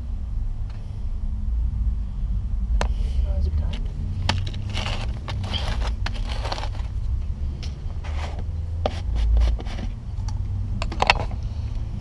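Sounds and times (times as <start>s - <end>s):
low rumble: 0.0s - 8.8s
hands scraping a pipe in soil: 4.2s - 7.1s, 8.0s - 10.0s.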